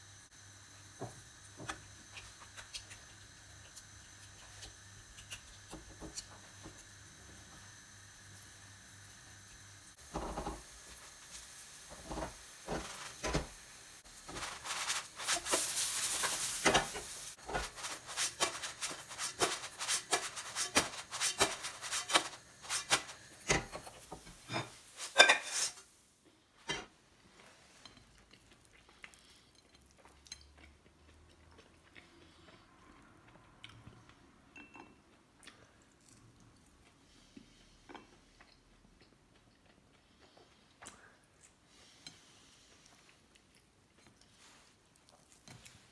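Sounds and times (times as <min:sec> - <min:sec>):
batter hissing in hot oil: 0:00.0 - 0:26.1
spatula scraping frying pan: 0:14.2 - 0:25.9.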